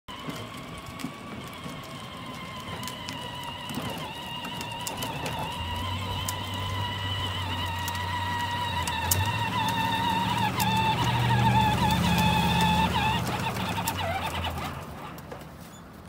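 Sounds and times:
toy truck electric motor whining: 0:00.1 - 0:15.8.

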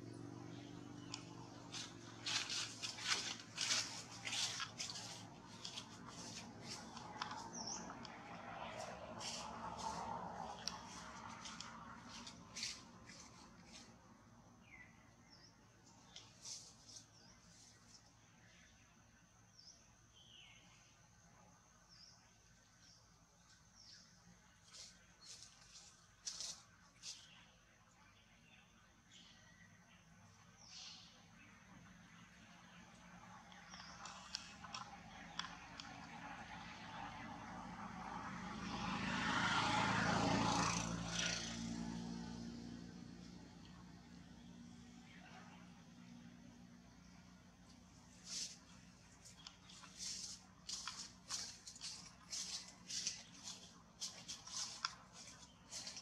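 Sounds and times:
engine passing by: 0:00.0 - 0:17.8, 0:30.5 - 0:56.0.

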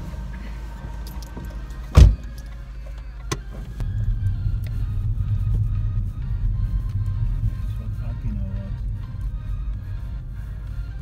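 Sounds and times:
car cabin rumble: 0:00.0 - 0:11.0
loud thump: 0:01.9 - 0:02.3.

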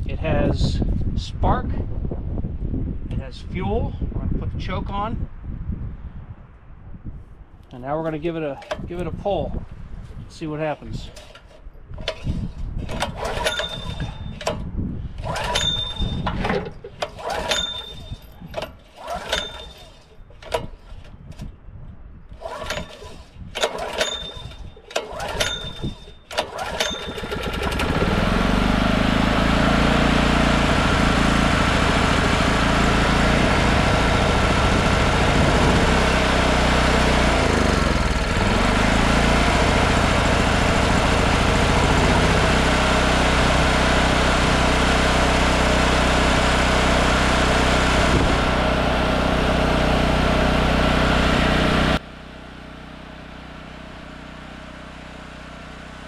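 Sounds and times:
recoil starter pulls: 0:08.3 - 0:09.2, 0:10.3 - 0:21.6, 0:22.3 - 0:52.0
small gas engine running: 0:10.7 - 0:21.4, 0:22.3 - 0:56.0.

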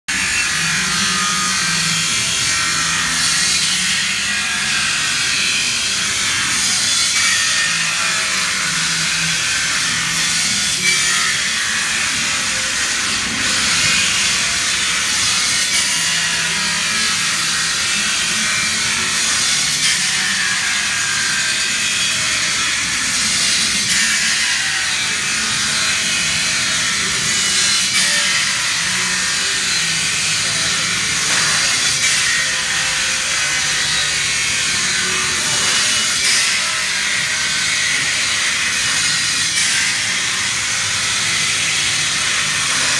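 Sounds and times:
circular saw cutting metal: 0:00.1 - 0:42.9.

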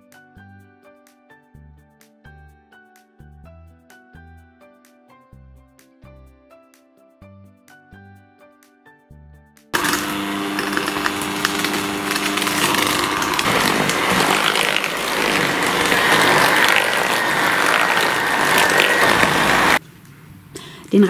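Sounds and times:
electric hand mixer whirring: 0:09.8 - 0:19.8.

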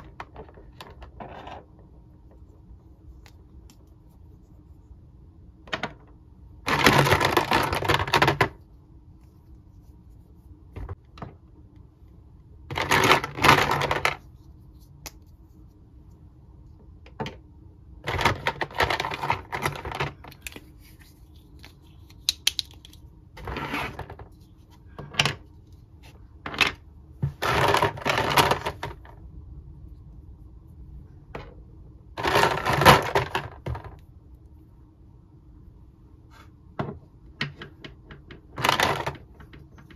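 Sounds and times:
plastic toy parts clattering: 0:06.7 - 0:08.6, 0:12.7 - 0:14.2, 0:18.0 - 0:20.6, 0:27.4 - 0:29.1, 0:32.2 - 0:33.9, 0:38.3 - 0:39.9
plastic pieces clicking on table: 0:22.1 - 0:23.0.

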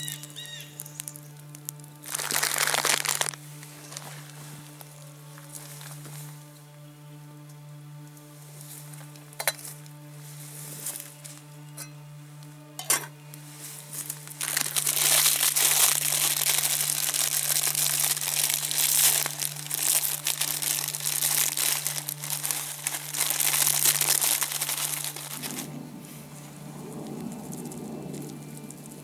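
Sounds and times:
plastic packet crinkling: 0:00.0 - 0:05.1, 0:14.0 - 0:25.8, 0:26.8 - 0:29.0.

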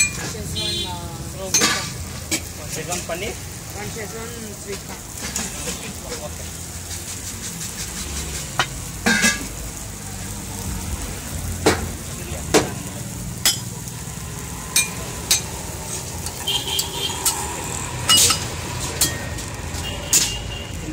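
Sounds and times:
metal spatulas clinking and scraping: 0:00.0 - 0:00.4, 0:01.4 - 0:02.5, 0:08.6 - 0:09.5, 0:14.8 - 0:19.5, 0:20.1 - 0:20.5
food sizzling on griddle: 0:00.0 - 0:20.9.

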